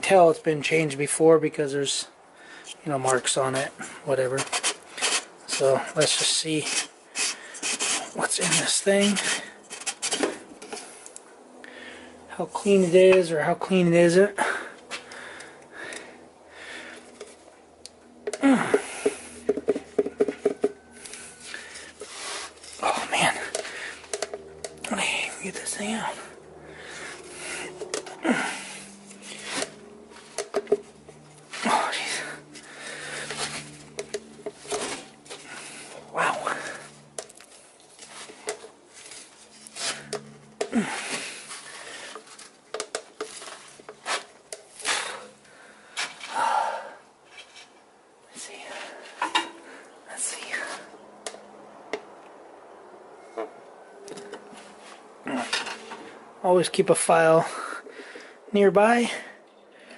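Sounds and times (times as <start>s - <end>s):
knocks and scraping on filter cap: 18.3s - 20.8s, 30.3s - 31.2s.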